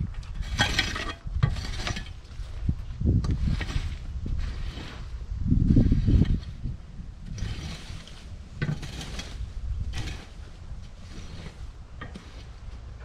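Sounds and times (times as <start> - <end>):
metal bar scraping and knocking: 0.0 - 13.0
wind rumbling on microphone: 0.0 - 13.0.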